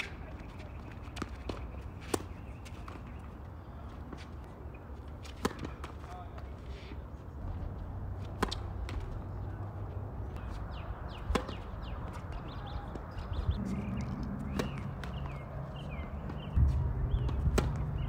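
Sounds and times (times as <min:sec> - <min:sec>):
tennis racquet hitting ball: 0:13.6 - 0:16.5, 0:17.2 - 0:18.0.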